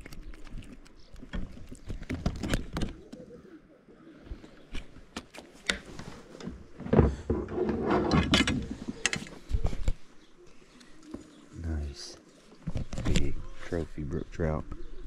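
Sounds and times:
knocks and scrapes in plastic kayak: 4.8 - 9.8.

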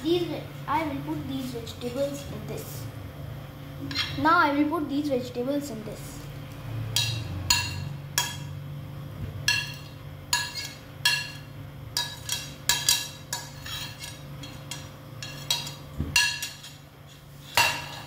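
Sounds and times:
metal spoon tapping a plate: 7.0 - 8.5, 9.5 - 16.7.

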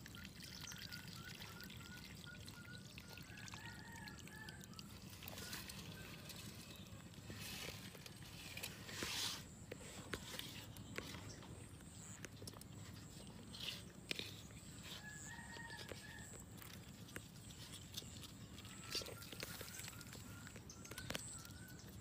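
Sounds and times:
rooster crowing: 3.3 - 4.6, 14.9 - 16.4.

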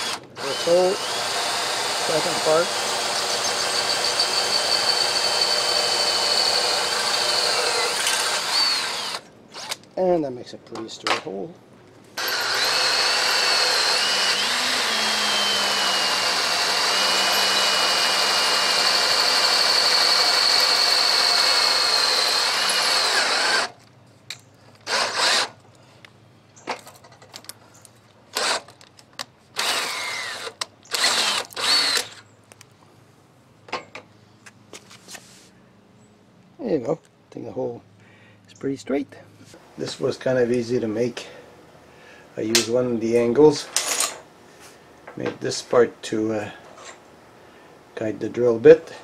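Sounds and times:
power drill whining through metal: 0.0 - 9.8, 12.2 - 23.8, 24.8 - 25.6, 28.3 - 28.7, 29.6 - 32.2
drill bit slipping in chuck: 12.2 - 23.7.

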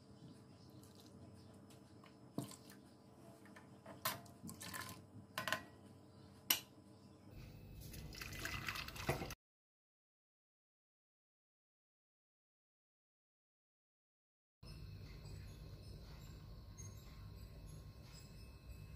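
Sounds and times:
tea pouring through strainer: 7.8 - 9.4.

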